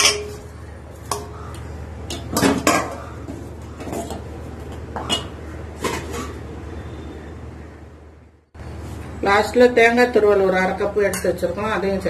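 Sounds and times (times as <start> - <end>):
metal ladle clinking on pot: 0.0 - 0.4.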